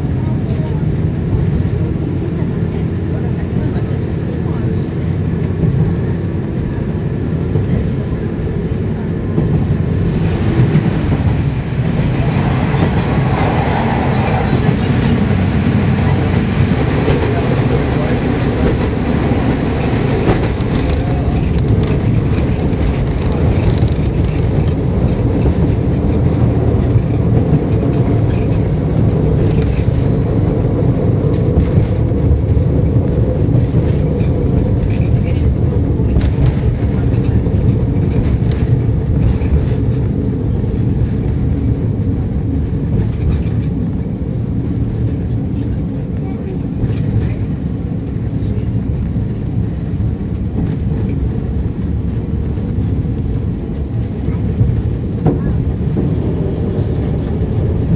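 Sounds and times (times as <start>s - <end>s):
diesel engine drone: 0.0s - 57.9s
wheel and rail rumble: 0.0s - 57.9s
wheels knocking on rail joints: 16.6s - 30.4s.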